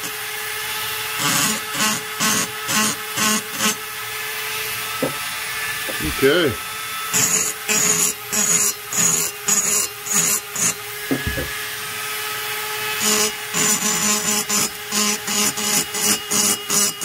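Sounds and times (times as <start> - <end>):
rotary grinder running: 0.0 - 17.0
grinder burr scraping metal: 5.0 - 6.6.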